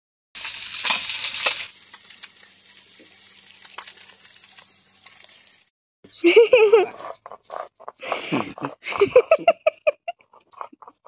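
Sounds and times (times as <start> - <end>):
oil sizzling in a pan: 0.4 - 5.7.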